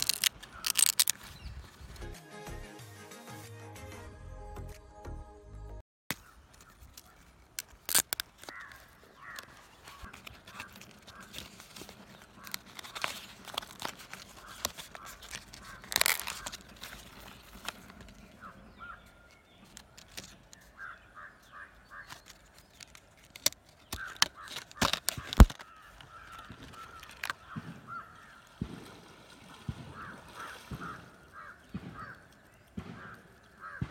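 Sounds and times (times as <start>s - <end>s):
plastic packaging crackling: 0.0s - 2.0s, 6.1s - 20.8s, 21.9s - 27.6s
birds calling: 6.1s - 33.9s.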